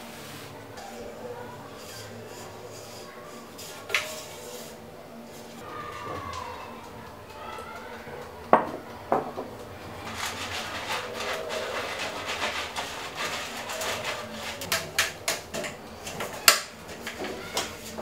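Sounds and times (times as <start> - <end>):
brush scraping metal tin: 10.0 - 14.7.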